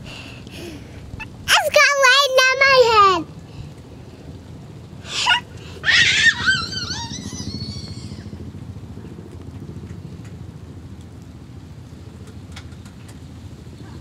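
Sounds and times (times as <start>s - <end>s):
steady low rumble: 0.0s - 14.0s
child shrieking: 1.5s - 3.2s, 5.1s - 8.3s
child squealing call: 1.5s - 3.2s, 5.1s - 8.4s.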